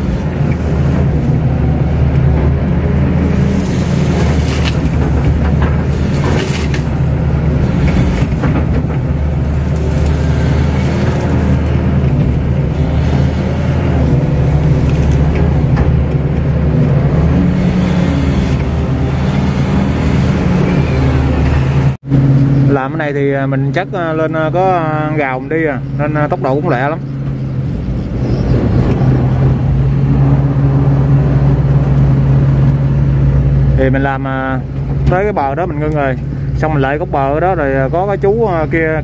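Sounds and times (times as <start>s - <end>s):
excavator diesel engine running: 0.0s - 39.0s
excavator bucket clanks: 2.2s - 19.0s.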